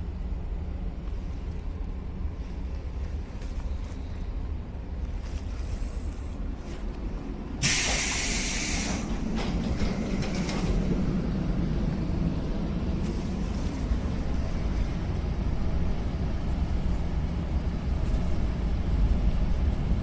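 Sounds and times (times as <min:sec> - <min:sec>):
train car rumble: 0:00.0 - 0:20.0
compressed air hissing: 0:07.6 - 0:09.2.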